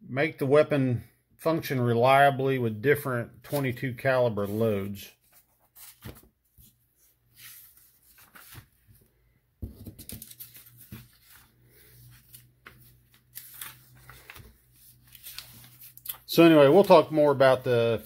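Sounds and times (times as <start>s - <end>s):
paper pages rustling: 4.4s - 18.0s.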